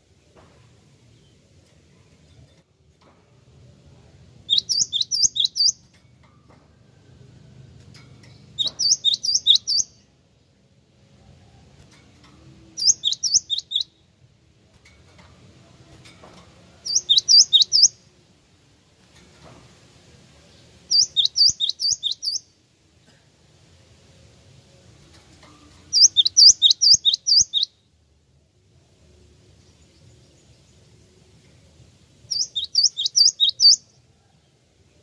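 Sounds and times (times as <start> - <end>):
bird singing sharp high notes: 4.4 - 5.8, 8.6 - 10.0, 12.8 - 14.0, 16.8 - 18.0, 20.9 - 22.5, 25.9 - 27.8, 32.3 - 33.9.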